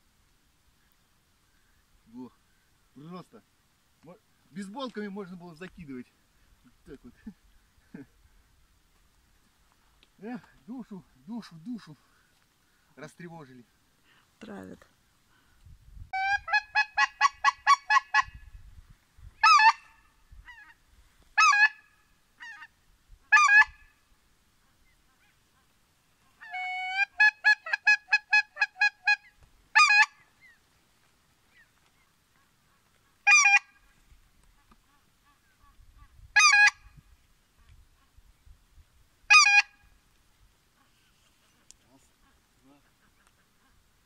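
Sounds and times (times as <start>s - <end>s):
goose call honks: 19.4s - 20.8s, 21.4s - 22.7s, 23.3s - 23.9s, 26.3s - 30.2s, 32.7s - 33.8s, 34.6s - 36.9s, 39.3s - 39.9s.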